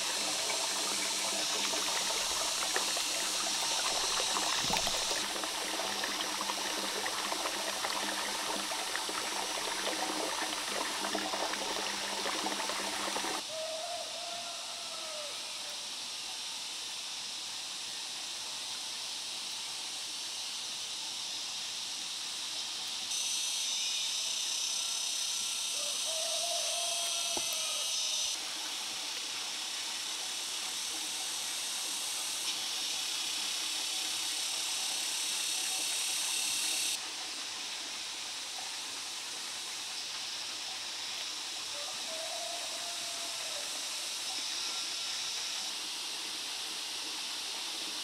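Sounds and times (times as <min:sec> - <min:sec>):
steady high hiss: 0:13.4 - 0:48.0.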